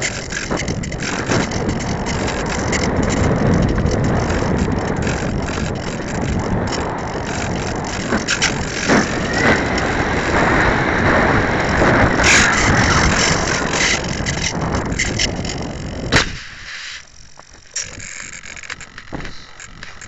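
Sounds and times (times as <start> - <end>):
airframe rattling and knocks: 0.0 - 16.2
air rushing and buffeting: 0.0 - 20.0
small clicks and handling noises: 17.3 - 20.0.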